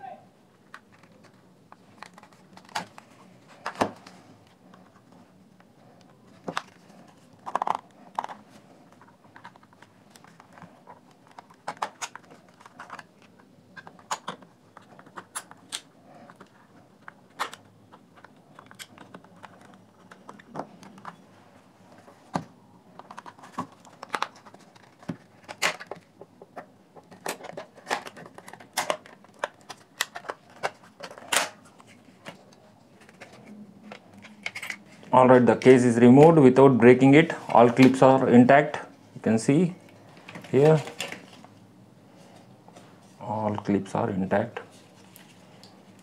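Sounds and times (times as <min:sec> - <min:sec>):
plastic rubbing: 0:06.3 - 0:22.3.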